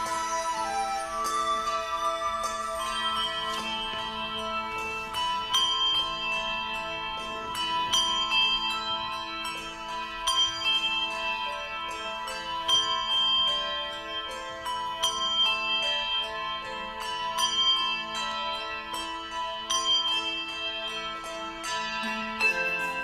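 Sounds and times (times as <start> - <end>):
handbells ringing: 0.0 - 23.0.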